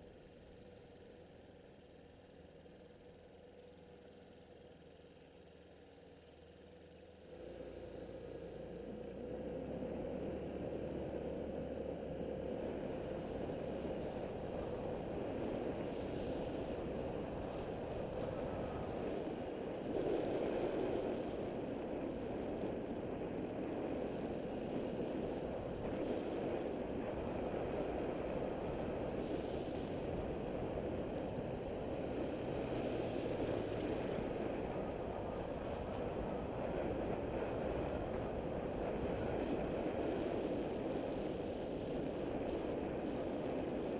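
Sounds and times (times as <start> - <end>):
road noise: 0.0 - 43.9
wind on microphone: 12.3 - 43.9.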